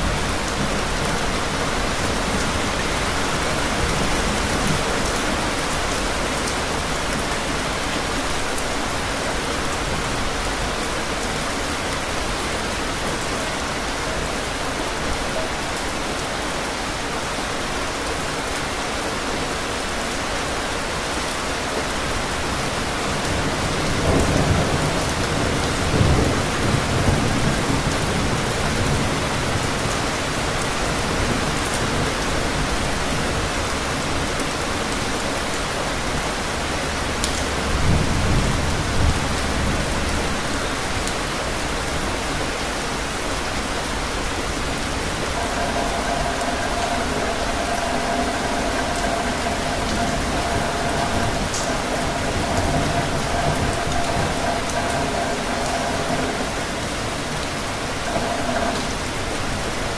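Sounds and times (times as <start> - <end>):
heavy rainfall: 0.0 - 59.9
thunder rumbling: 37.4 - 59.9.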